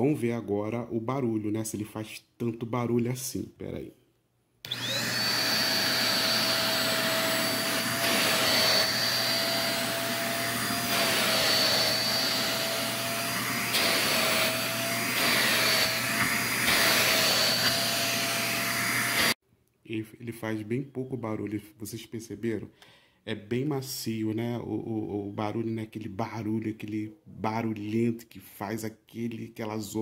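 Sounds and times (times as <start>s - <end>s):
handheld vacuum cleaner running: 4.7s - 19.4s.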